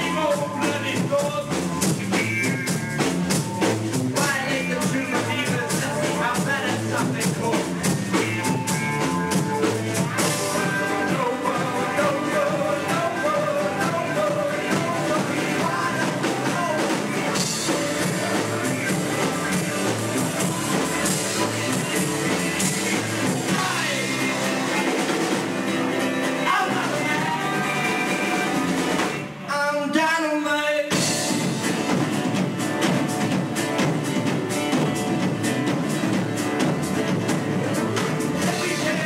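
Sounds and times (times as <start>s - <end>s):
man singing: 0.0s - 2.6s, 4.1s - 25.3s, 26.0s - 31.6s, 37.6s - 39.0s
rock band playing: 0.0s - 29.7s, 30.8s - 39.0s.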